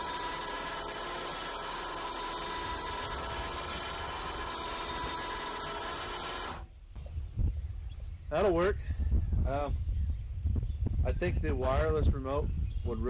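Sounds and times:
electric winch motor whine: 0:00.0 - 0:06.7.

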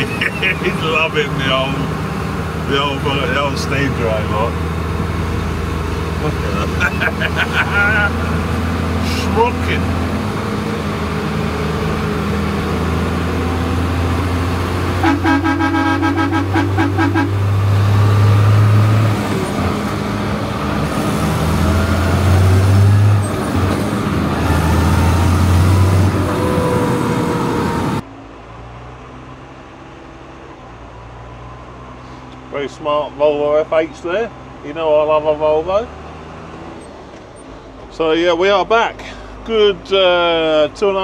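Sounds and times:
tractor engine droning: 0:00.0 - 0:29.3
horn pulsing toot: 0:15.0 - 0:17.6.

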